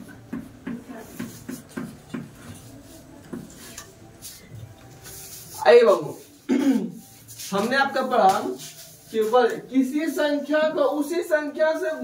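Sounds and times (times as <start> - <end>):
chalk tapping on chalkboard: 0.2 - 4.4
chalk scraping on chalkboard: 0.6 - 9.6.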